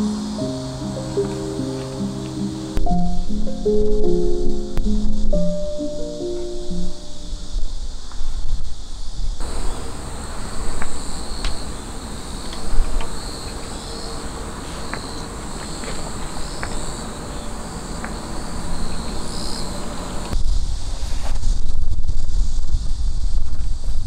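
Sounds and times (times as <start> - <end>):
wind rumble on microphone: 0.0 - 10.1, 20.0 - 24.0
insects chirring: 0.0 - 24.0.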